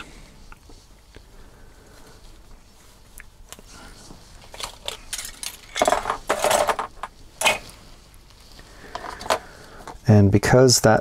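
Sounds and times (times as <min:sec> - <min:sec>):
plastic parts clicking and clattering: 0:04.4 - 0:07.7, 0:08.9 - 0:10.0.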